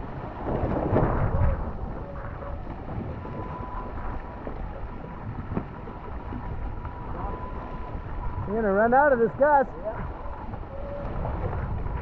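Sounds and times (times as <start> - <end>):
water rushing along hull: 0.0 - 12.0
wind buffeting microphone: 0.0 - 12.0
faint whistle: 3.3 - 4.0, 7.2 - 7.9.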